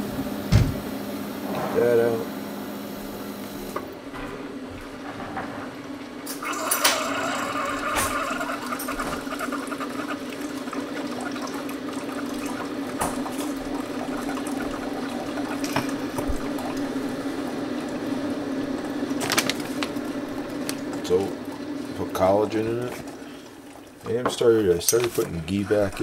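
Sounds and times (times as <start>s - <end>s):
coffee maker pump humming: 0.0s - 5.0s, 5.8s - 26.0s
coffee streaming into mug: 6.3s - 24.4s.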